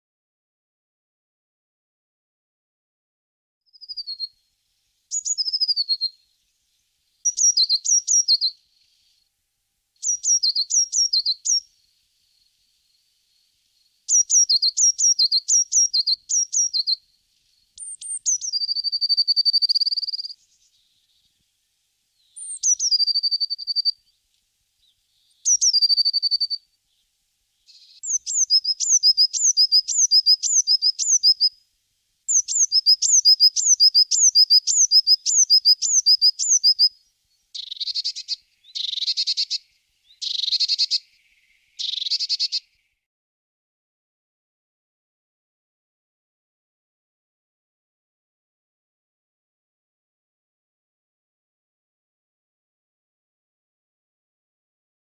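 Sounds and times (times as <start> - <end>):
small songbird singing: 3.7 - 9.3, 10.0 - 43.1.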